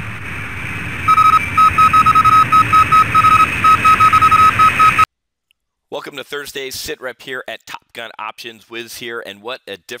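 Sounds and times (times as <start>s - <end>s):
short and long electronic beeps: 1.1s - 5.1s.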